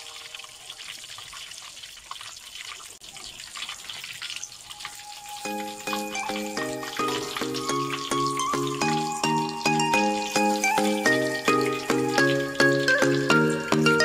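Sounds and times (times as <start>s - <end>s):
chicken sizzling in hot oil: 0.0s - 14.0s
plucked background music: 5.1s - 14.0s.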